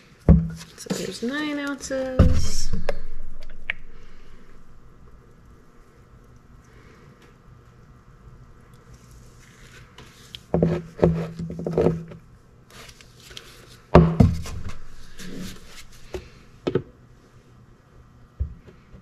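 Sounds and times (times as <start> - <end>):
gloved hands rustling: 12.8 - 16.4.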